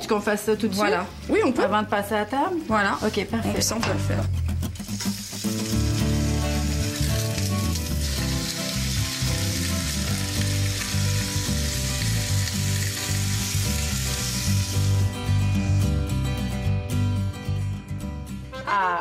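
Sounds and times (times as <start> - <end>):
ham sizzling in a frying pan: 4.7 - 15.7.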